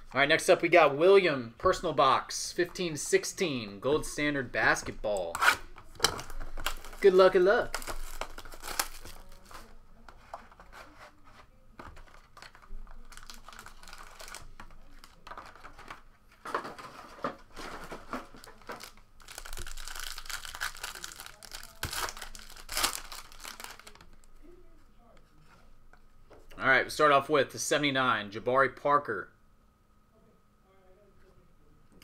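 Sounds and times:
foil wrappers crinkling and tearing: 0:05.5 - 0:09.8, 0:11.9 - 0:24.5.

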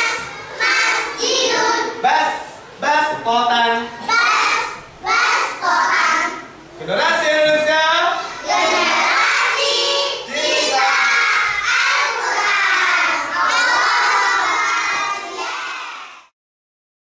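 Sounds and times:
children chanting in unison: 0:00.0 - 0:02.0, 0:04.0 - 0:06.6, 0:08.2 - 0:16.3.

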